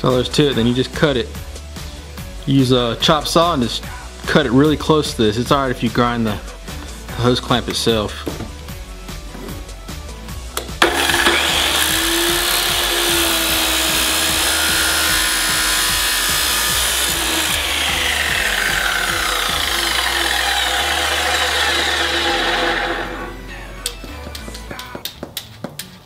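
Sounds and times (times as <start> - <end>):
chop saw grinding steel: 10.6 - 23.4.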